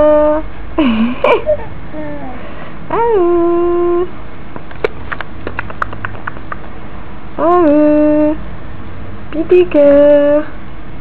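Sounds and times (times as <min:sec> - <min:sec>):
baby cooing: 0:01.9 - 0:03.8.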